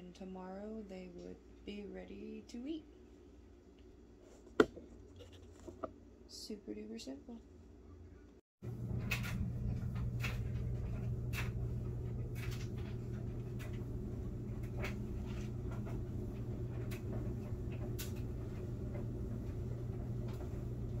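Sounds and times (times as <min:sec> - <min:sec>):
low hum: 0:07.5 - 0:21.0.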